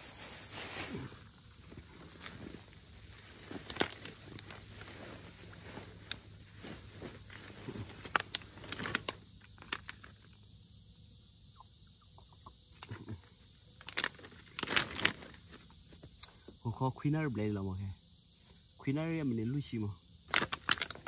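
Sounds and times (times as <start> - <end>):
crackles and rustles: 0.0 - 10.4, 12.8 - 16.6, 20.3 - 21.0
high-pitched insect drone: 0.0 - 21.0.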